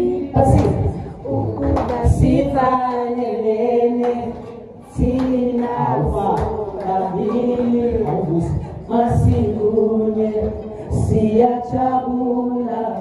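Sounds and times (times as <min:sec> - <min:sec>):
person singing long held notes: 0:00.0 - 0:04.4.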